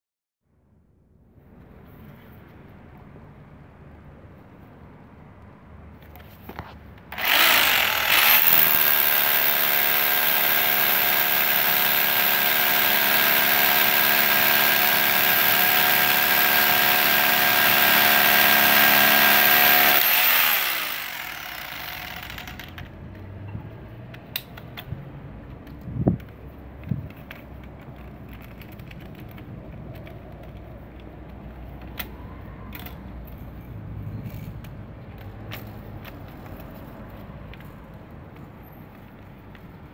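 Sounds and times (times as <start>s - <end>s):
rotary hammer drilling concrete: 7.1s - 23.0s.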